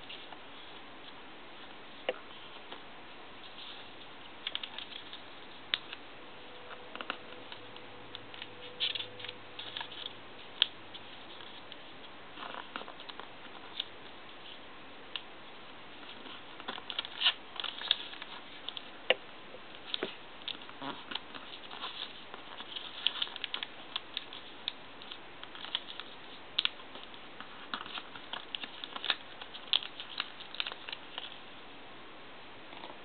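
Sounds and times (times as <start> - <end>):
faint steady hiss: 0.0 - 33.0
paper crinkling and rustling: 3.4 - 14.6, 15.6 - 18.9, 19.7 - 31.4.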